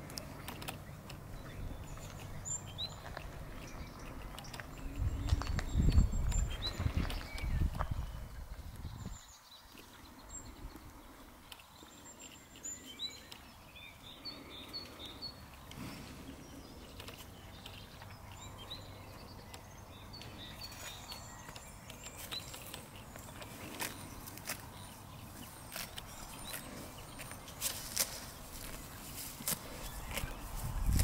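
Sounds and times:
small birds chirping: 0.0 - 31.0
sharp clicks: 0.1 - 1.3, 3.0 - 4.9.

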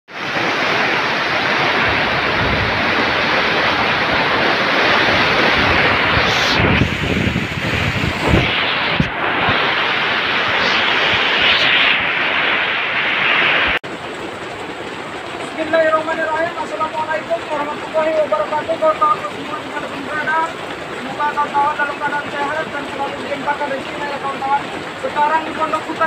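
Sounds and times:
wind rumbling on microphone: 0.1 - 15.5
heavy rain on plastic tarp: 0.1 - 26.0.

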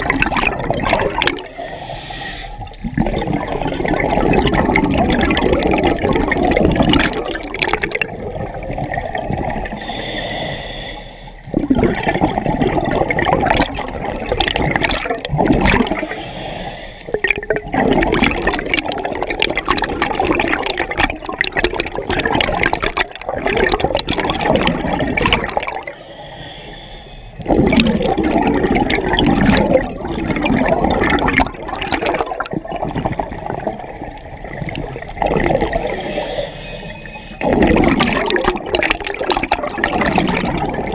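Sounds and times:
bubbles gurgling underwater: 0.0 - 1.7, 2.6 - 10.1, 11.4 - 16.2, 17.1 - 26.0, 27.4 - 36.4, 37.0 - 40.9
diver breathing through regulator: 1.4 - 3.2, 9.7 - 11.7, 15.8 - 17.2, 25.6 - 27.7, 34.4 - 38.0.

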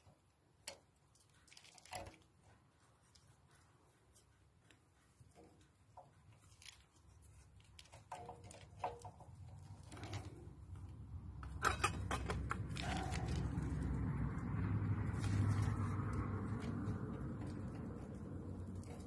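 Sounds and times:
diesel engine rumble: 9.7 - 19.0.

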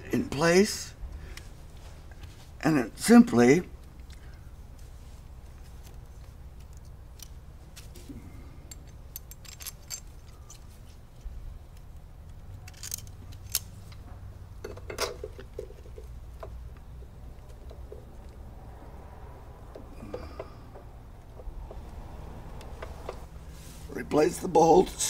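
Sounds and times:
low steady hum: 0.0 - 25.0
metal clicks and clinks: 8.6 - 11.3, 12.3 - 14.0.

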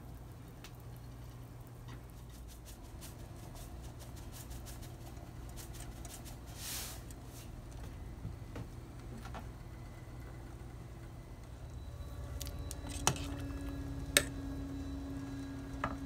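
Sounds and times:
salt pouring hiss: 6.3 - 7.1
low hum: 7.1 - 16.0.

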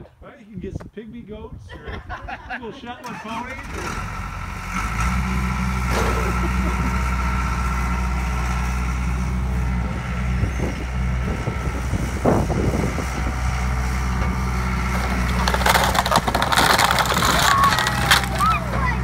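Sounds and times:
skid steer engine running: 3.2 - 19.0
wood cracking and splintering: 14.2 - 19.0.

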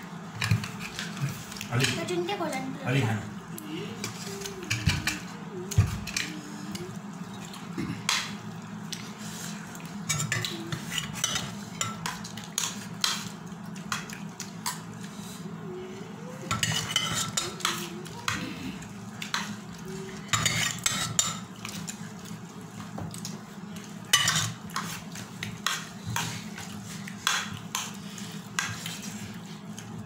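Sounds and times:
spoons clinking on steel plates: 16.5 - 17.8, 24.1 - 24.6.

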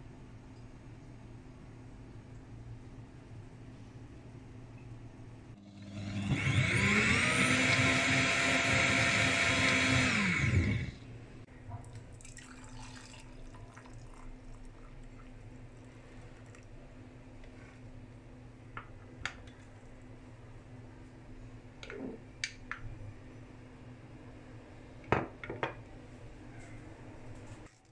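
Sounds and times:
blender motor whining: 5.6 - 11.0
drink pouring: 11.9 - 16.7.

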